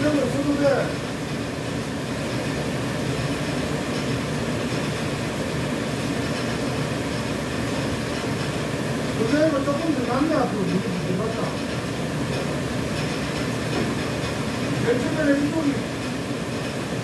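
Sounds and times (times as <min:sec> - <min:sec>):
production machine humming and rattling: 0:00.0 - 0:17.0.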